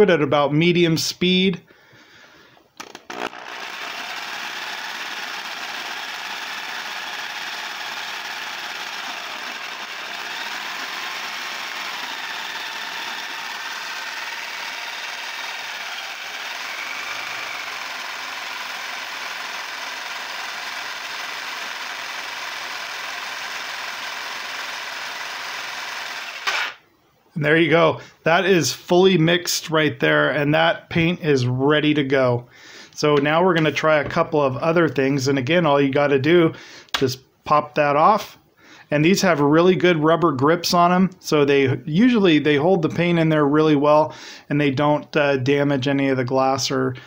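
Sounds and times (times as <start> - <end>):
electric drill running: 2.8 - 26.8.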